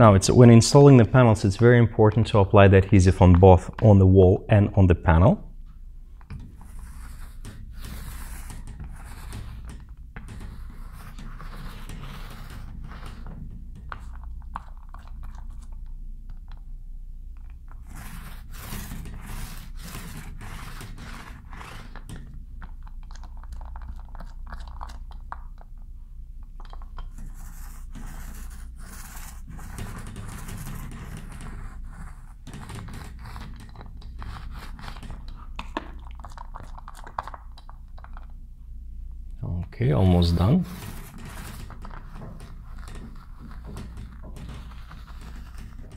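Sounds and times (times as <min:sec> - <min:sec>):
paint roller rolling on drywall: 0:06.2 - 0:16.6, 0:17.5 - 0:25.7, 0:26.6 - 0:38.3, 0:40.0 - 0:45.9.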